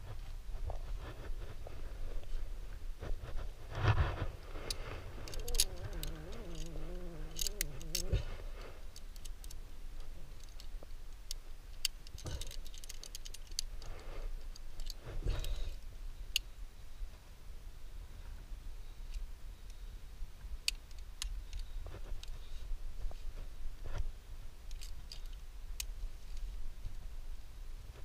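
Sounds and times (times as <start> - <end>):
metal carabiners clinking: 5.2 - 8.2, 11.7 - 13.7.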